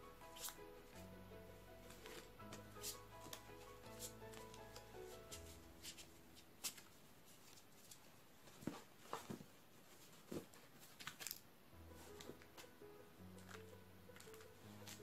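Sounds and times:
soft background music: 0.0s - 6.8s, 11.7s - 15.0s
photo cards flipped through: 1.9s - 9.4s, 10.1s - 11.4s, 13.4s - 15.0s.

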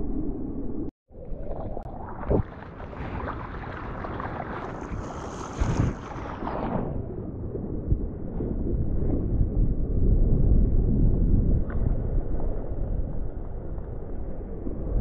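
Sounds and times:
surf water rushing: 2.0s - 6.9s
wind buffeting microphone: 2.3s - 15.0s.

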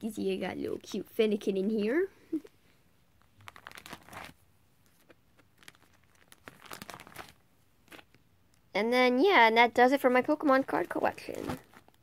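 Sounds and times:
plastic pages crinkling: 3.2s - 8.2s, 10.4s - 12.0s.

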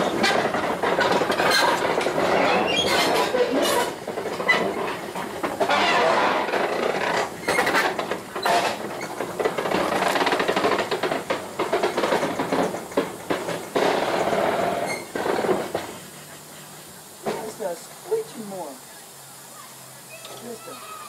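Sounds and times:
running gear clanking and rattling: 0.0s - 16.1s
steam locomotive rolling: 0.0s - 21.0s.

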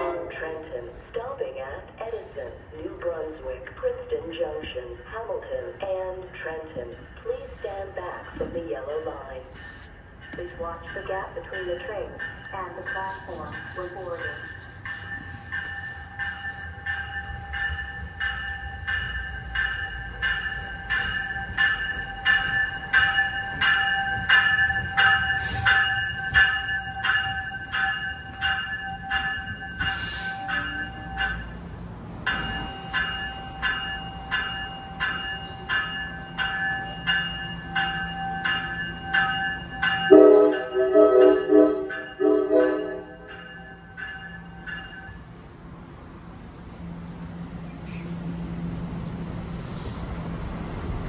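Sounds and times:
train rumbling: 0.0s - 51.0s
train bell ringing: 4.7s - 45.6s
train horn: 40.1s - 43.3s.

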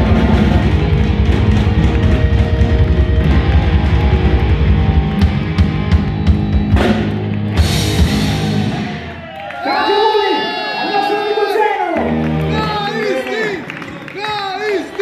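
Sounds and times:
heavy metal band playing live: 0.0s - 9.2s.

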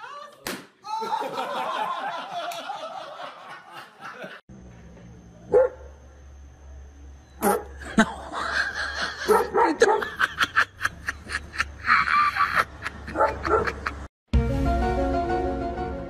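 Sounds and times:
large dog barking: 9.2s - 10.2s, 13.1s - 13.9s.

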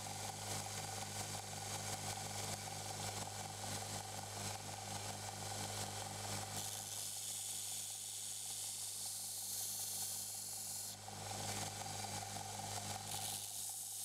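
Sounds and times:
belt grinder motor humming: 6.6s - 14.0s
knife blade grinding hiss: 13.1s - 14.0s.

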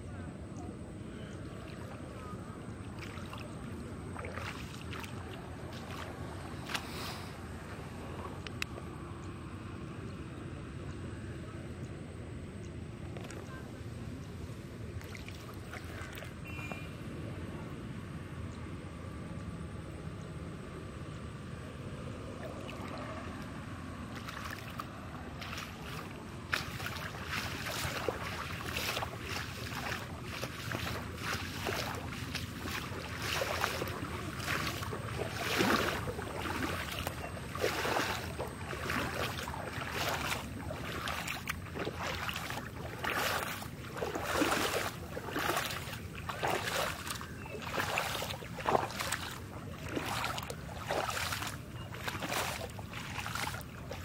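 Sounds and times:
water splashing: 1.4s - 8.4s, 15.0s - 16.9s, 22.3s - 54.0s.

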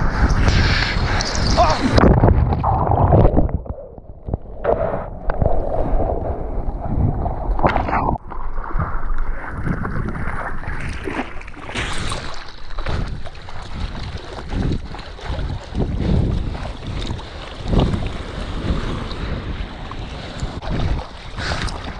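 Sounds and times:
wind buffeting microphone: 0.0s - 11.2s, 11.8s - 21.9s
seawater sloshing and splashing: 6.7s - 21.9s.

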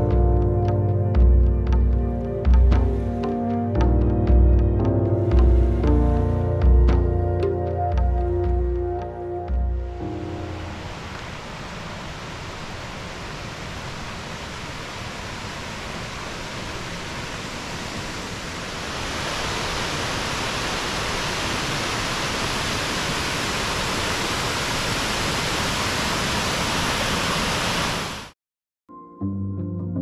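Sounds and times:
waterfall rushing: 9.9s - 28.3s.

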